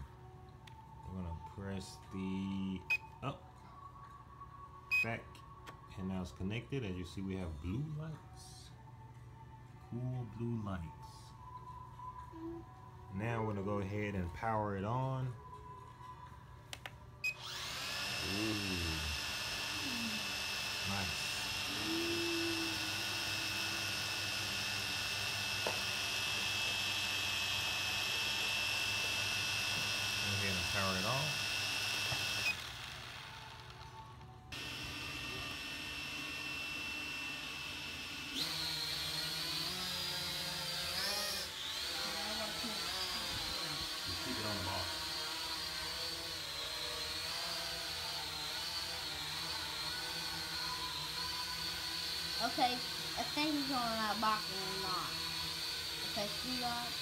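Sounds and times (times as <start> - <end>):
drone propellers whining: 17.4 - 33.9
toy drone propellers whirring: 17.4 - 57.0.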